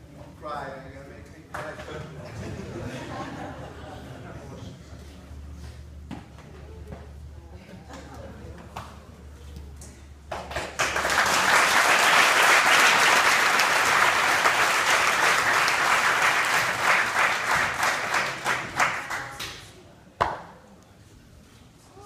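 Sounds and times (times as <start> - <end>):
audience applause: 10.4 - 19.4.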